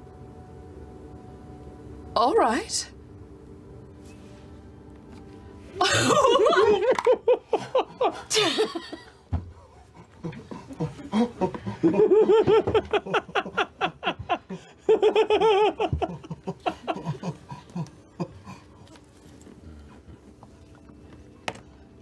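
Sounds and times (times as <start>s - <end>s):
people laughing: 5.8s - 9.2s, 10.0s - 18.6s.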